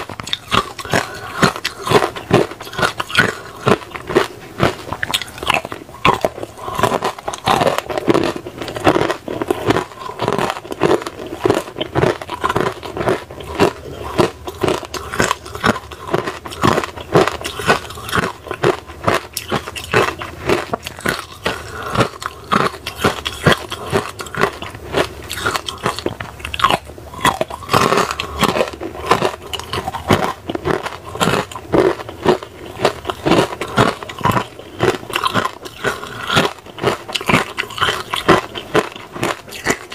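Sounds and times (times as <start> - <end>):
chewing: 0.0 - 39.9
ice cubes crunched between teeth: 0.0 - 39.9.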